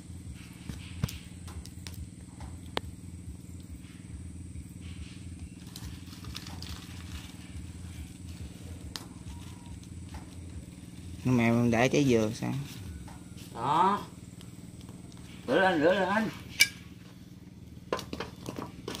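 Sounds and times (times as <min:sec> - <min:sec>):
steady low hum: 0:00.0 - 0:19.0
dry leaves rustling and crackling: 0:05.5 - 0:13.6.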